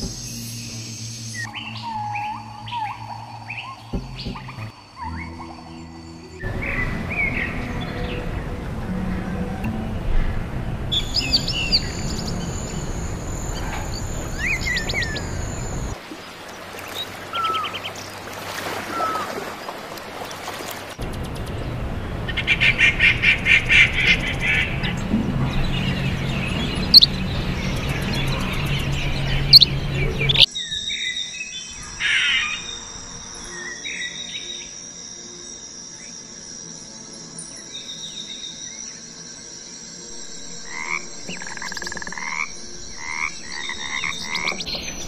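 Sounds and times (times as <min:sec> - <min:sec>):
high-pitched insect drone: 0:00.0 - 0:06.5, 0:11.0 - 0:16.0, 0:30.4 - 0:45.0
birds chirping: 0:00.0 - 0:34.8, 0:36.6 - 0:45.0
rapid pulsed bird calls: 0:00.0 - 0:45.0.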